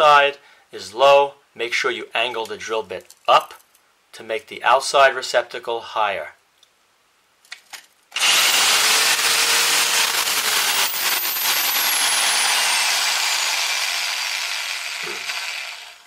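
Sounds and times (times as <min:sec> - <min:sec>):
drill grinding through concrete: 0:08.2 - 0:16.0.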